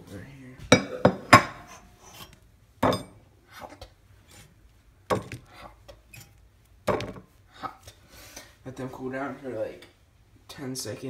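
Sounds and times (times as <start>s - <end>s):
waffles knocking onto ceramic plate: 5.1s - 5.5s, 6.8s - 7.3s.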